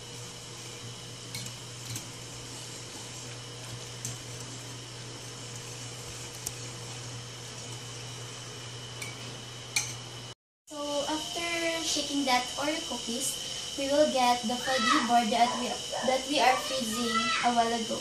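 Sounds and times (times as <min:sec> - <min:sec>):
whisk stirring thick mixture: 0:00.0 - 0:09.9
steady low hum: 0:00.0 - 0:18.0.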